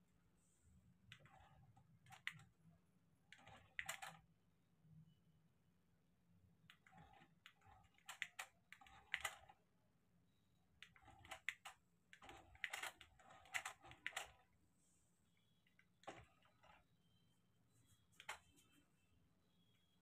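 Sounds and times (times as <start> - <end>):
plastic clicking of toy car: 3.4 - 4.2, 6.7 - 9.6, 10.8 - 14.4.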